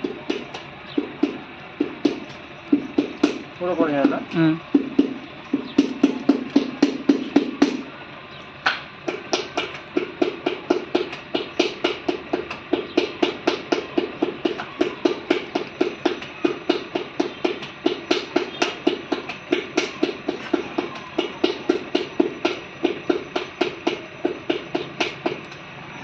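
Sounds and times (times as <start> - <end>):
potter's wheel clacking: 9.0 - 25.6.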